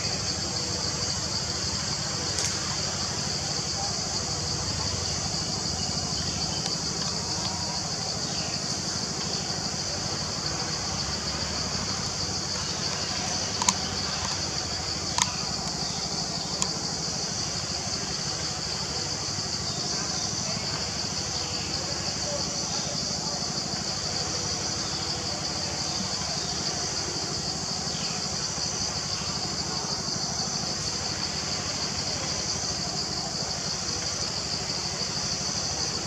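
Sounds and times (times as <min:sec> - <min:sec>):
high-pitched insect chorus: 0:00.0 - 0:36.0
sharp clicks: 0:12.9 - 0:15.8.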